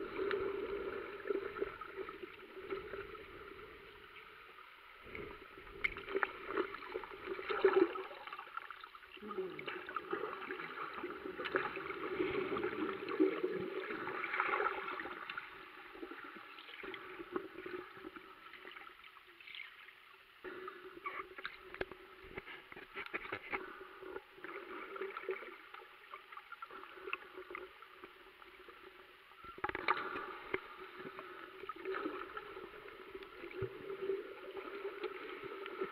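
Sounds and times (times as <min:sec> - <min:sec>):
muffled underwater sloshing: 0:00.0 - 0:35.9.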